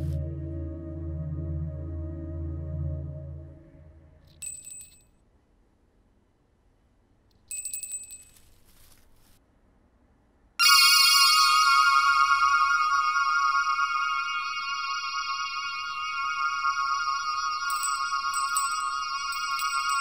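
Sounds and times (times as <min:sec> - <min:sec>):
low drone: 0:00.0 - 0:04.5
small metal bell dings: 0:04.3 - 0:05.1, 0:07.5 - 0:08.5, 0:17.7 - 0:20.0
bright ringing tone: 0:10.6 - 0:20.0.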